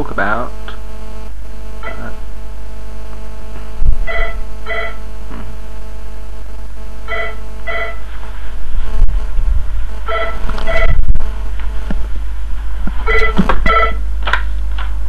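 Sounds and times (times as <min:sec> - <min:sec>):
electrical mains hum: 0:00.0 - 0:15.0
short beeps: 0:07.1 - 0:08.0, 0:13.1 - 0:14.0.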